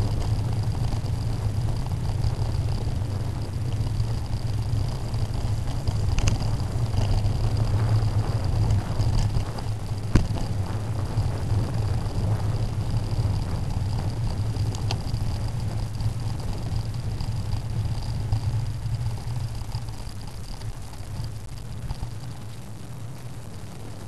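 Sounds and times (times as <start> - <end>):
bicycle tyres rumbling on dirt: 0.0 - 24.0
bike hitting bump knock: 10.1 - 10.4.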